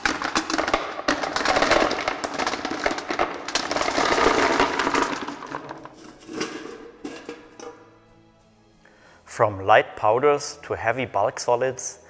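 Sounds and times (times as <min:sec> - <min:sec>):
pebbles clattering into a box: 0:00.0 - 0:07.8.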